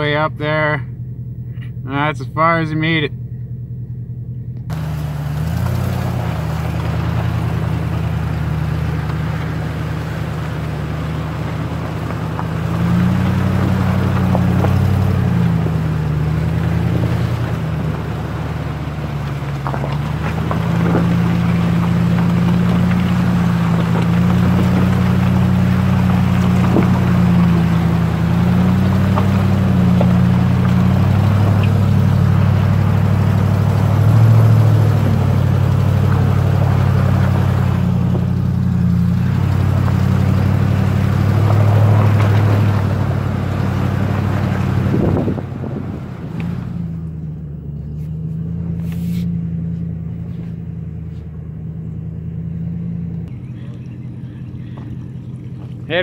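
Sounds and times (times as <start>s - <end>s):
truck engine revving under load: 0.0s - 56.0s.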